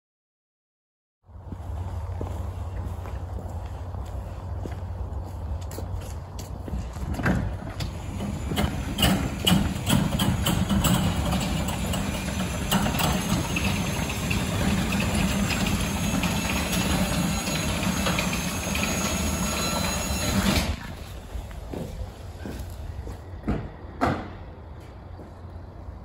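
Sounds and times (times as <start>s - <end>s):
door panels rattling on tracks: 7.1s - 20.9s
garage door motor humming: 7.1s - 21.4s.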